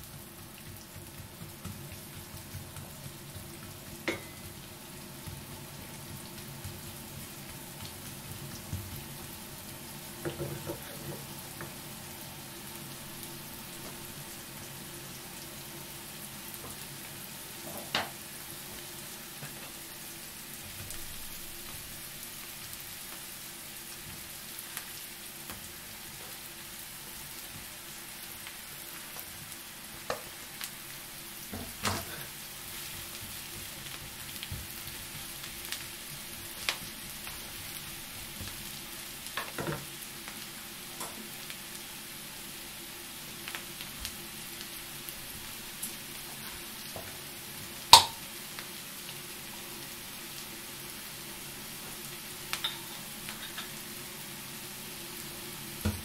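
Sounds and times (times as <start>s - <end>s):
onions sizzling in a frying pan: 0.0s - 56.0s.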